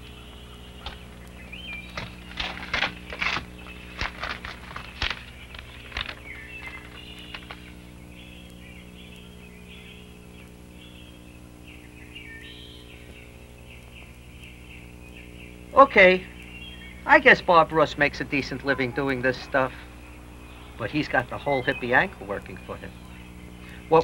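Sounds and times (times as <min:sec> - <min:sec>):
birds chirping: 0:00.0 - 0:24.0
low steady hum: 0:00.0 - 0:24.0
paper crackling and rustling: 0:00.8 - 0:08.0.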